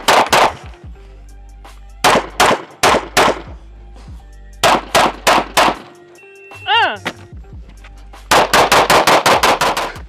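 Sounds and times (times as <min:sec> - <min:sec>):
pistol shots: 0:00.0 - 0:00.7, 0:02.0 - 0:03.5, 0:04.6 - 0:06.0, 0:08.3 - 0:09.9
background music: 0:00.0 - 0:10.0.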